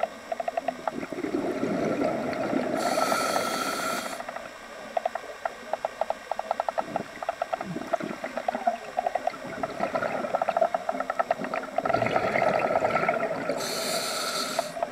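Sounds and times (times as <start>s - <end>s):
underwater sharp clicks: 0.0s - 1.0s, 4.2s - 9.4s
steady hum: 0.0s - 14.9s.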